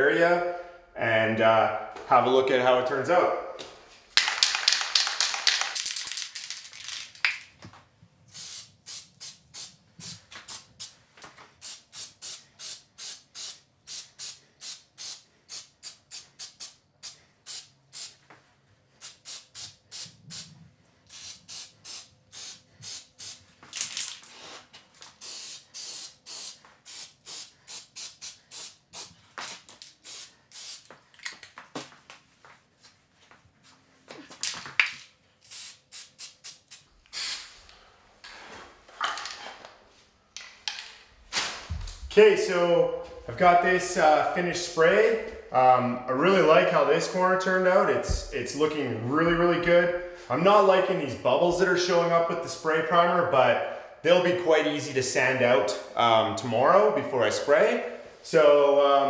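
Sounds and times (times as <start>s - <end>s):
aerosol can spraying: 8.3s - 11.0s, 11.6s - 18.2s, 19.0s - 20.5s, 21.1s - 23.4s, 25.0s - 31.0s, 35.4s - 37.5s.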